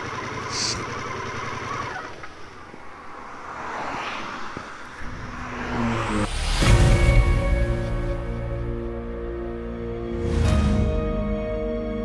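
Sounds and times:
motorcycle engine idling: 0:00.0 - 0:02.8
car traffic: 0:00.0 - 0:09.8.

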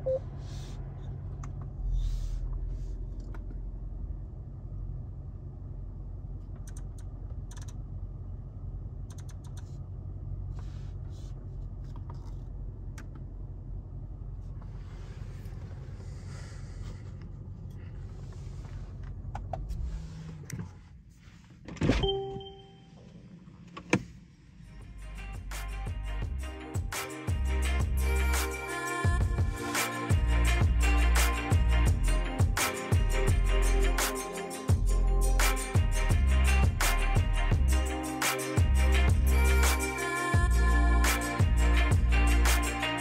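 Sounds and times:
car engine idling: 0:00.0 - 0:21.4
sharp click: 0:09.1 - 0:09.7.

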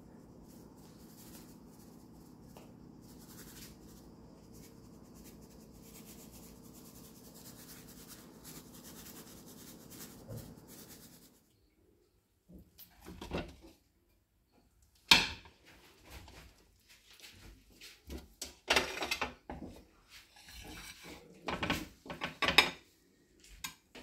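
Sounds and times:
steady low hum: 0:00.0 - 0:11.8.

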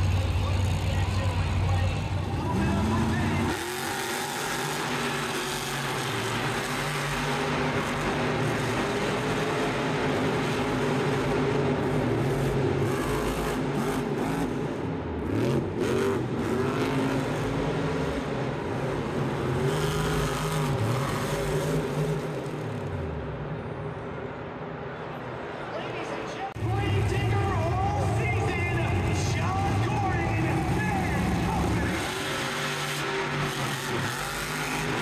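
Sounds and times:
monster truck engine revving: 0:00.0 - 0:24.1, 0:26.6 - 0:35.0.

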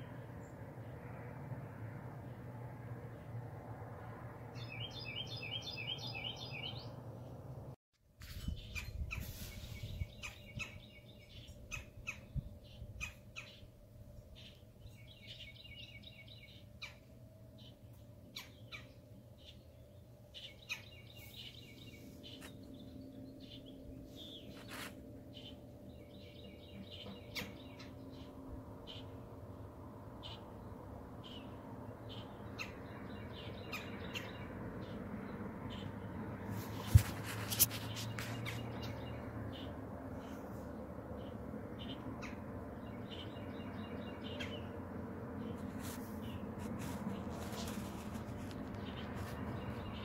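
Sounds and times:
woodpecker calling: 0:10.2 - 0:12.4.

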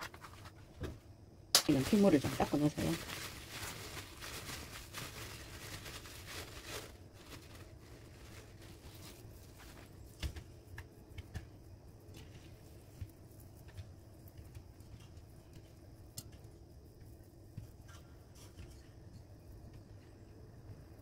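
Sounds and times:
paper towel crinkling: 0:01.6 - 0:10.4.

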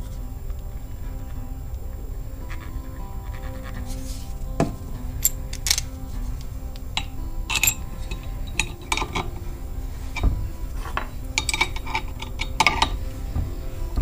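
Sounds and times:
metal tools clinking: 0:03.8 - 0:14.0.

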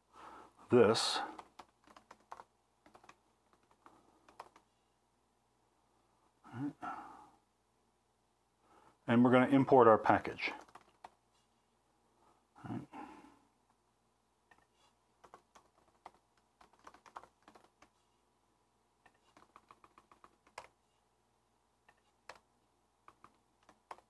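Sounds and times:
faint keyboard typing: 0:00.9 - 0:04.8, 0:10.3 - 0:11.3, 0:14.5 - 0:18.2, 0:19.0 - 0:20.9, 0:21.8 - 0:24.0.

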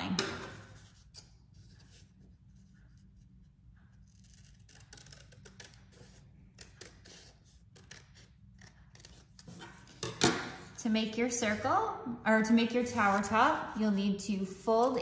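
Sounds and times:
scissors snipping paper: 0:03.8 - 0:10.0.

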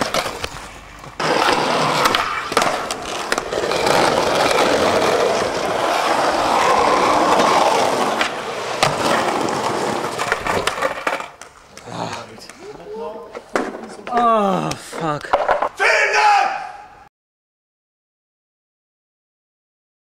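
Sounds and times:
skateboard wheels rolling on pavement: 0:00.0 - 0:14.2
skateboard clacking on ground: 0:00.0 - 0:15.8.

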